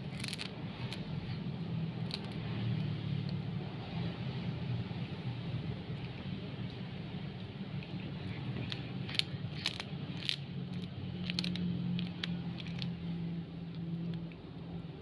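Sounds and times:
kitten crunching fish head: 0:00.0 - 0:01.1, 0:01.9 - 0:03.4, 0:07.5 - 0:14.4.

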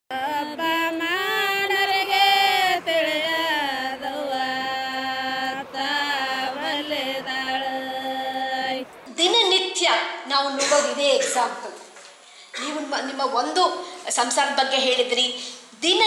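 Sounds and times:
person singing slow chant: 0:00.1 - 0:09.0.

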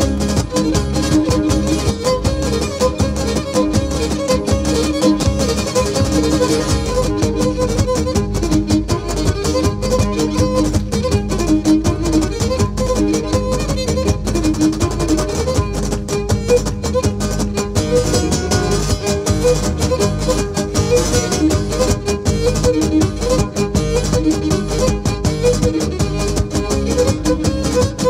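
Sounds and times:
bowed lyra melody: 0:00.0 - 0:28.0
drum beat: 0:00.0 - 0:28.0
strummed lutes: 0:00.0 - 0:28.0.

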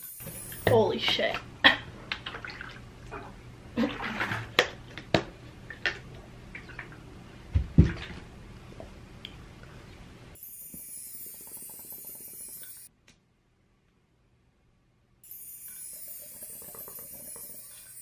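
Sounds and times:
plastic jug thump: 0:07.5 - 0:08.2.

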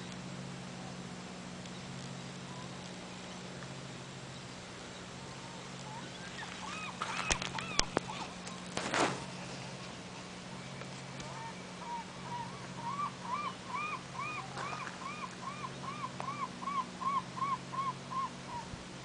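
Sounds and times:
gull calling: 0:05.4 - 0:08.7, 0:11.2 - 0:18.8.

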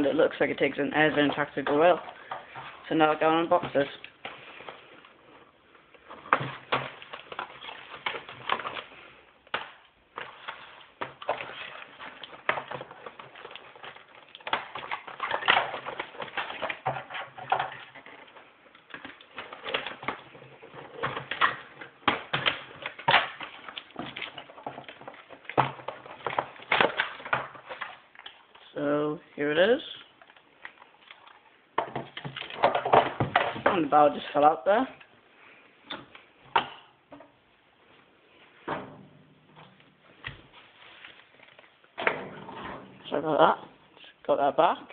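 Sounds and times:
cardboard and plastic crinkling: 0:00.0 - 0:28.8, 0:29.6 - 0:36.8, 0:39.5 - 0:42.0.

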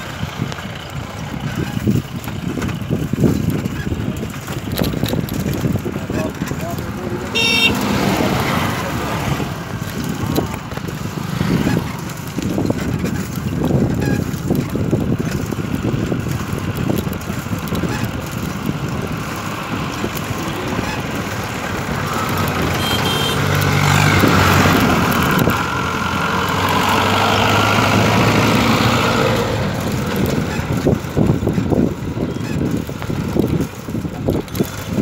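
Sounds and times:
low traffic rumble: 0:00.0 - 0:35.0
vehicle engine and tyre noise: 0:00.0 - 0:35.0.

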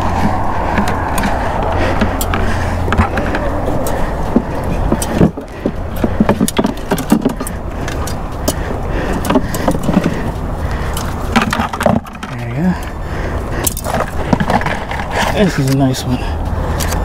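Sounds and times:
sharp clicks and knocks: 0:00.0 - 0:12.9
road traffic rumble: 0:00.0 - 0:17.0.

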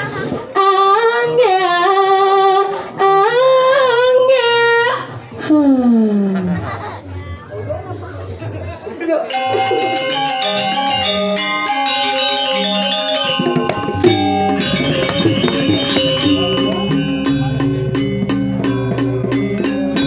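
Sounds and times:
cymbals clashing: 0:09.3 - 0:20.0
gamelan playing: 0:09.3 - 0:20.0.

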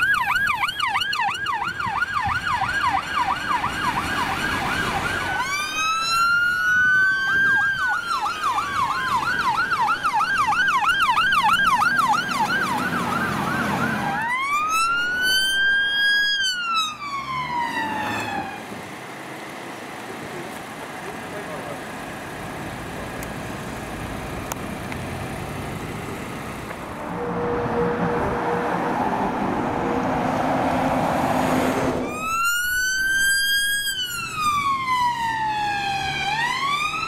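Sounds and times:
electronic siren yelp: 0:00.0 - 0:18.6, 0:32.0 - 0:37.0
siren wail: 0:00.0 - 0:18.7, 0:26.9 - 0:31.2, 0:31.8 - 0:37.0
vehicle engine idling: 0:18.7 - 0:27.0.

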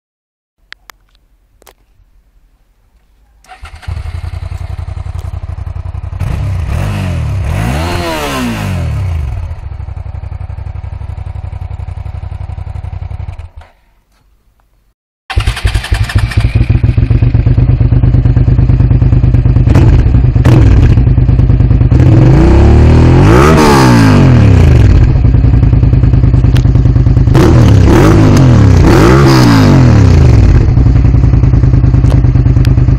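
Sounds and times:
motorcycle engine with stock exhaust: 0:03.4 - 0:13.8, 0:15.3 - 0:32.9
loud motorcycle engine revving: 0:03.7 - 0:10.4, 0:15.3 - 0:32.9.

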